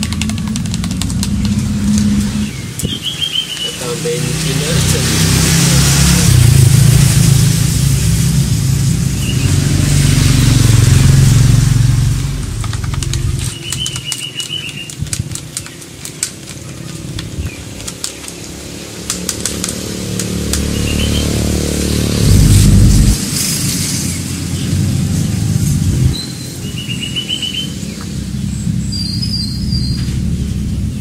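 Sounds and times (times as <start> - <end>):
stick tapping in plastic cup: 0.0 - 2.1, 12.6 - 18.4
motorcycle engine running: 0.0 - 2.7, 4.0 - 14.0, 16.1 - 26.1
bird chirping: 0.0 - 4.9, 9.1 - 10.3, 12.4 - 15.0, 20.0 - 22.4, 26.1 - 31.0.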